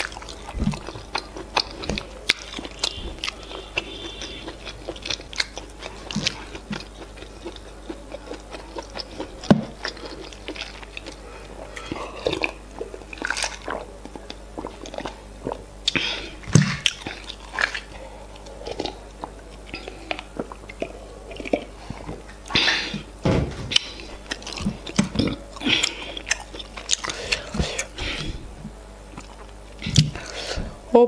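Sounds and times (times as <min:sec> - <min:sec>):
wet chewing: 0:00.0 - 0:30.6
loud knocks: 0:23.2 - 0:23.7.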